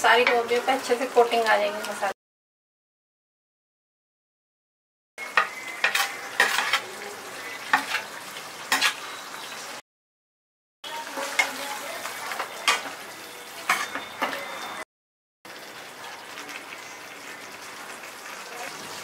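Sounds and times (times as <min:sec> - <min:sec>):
steady sizzle: 0:00.0 - 0:02.2, 0:05.2 - 0:09.8, 0:10.9 - 0:14.8, 0:15.5 - 0:19.0
ladle scraping a plate: 0:05.8 - 0:06.9.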